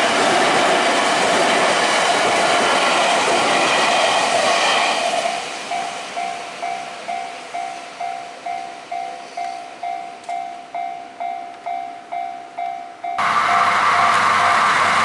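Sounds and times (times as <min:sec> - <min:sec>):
train passing close: 0:00.0 - 0:15.0
level-crossing warning bell ringing: 0:05.3 - 0:15.0.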